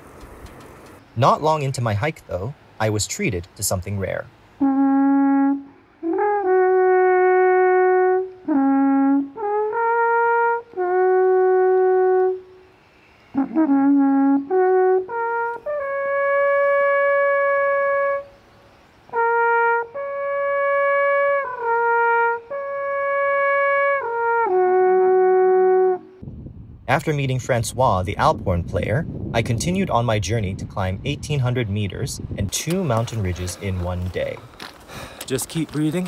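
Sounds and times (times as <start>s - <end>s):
alphorn playing long notes: 4.6s - 12.7s, 13.3s - 18.4s, 19.1s - 26.2s.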